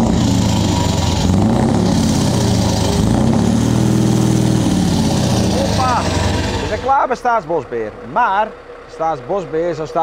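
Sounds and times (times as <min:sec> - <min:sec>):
diesel truck engine revving: 0:00.0 - 0:10.0.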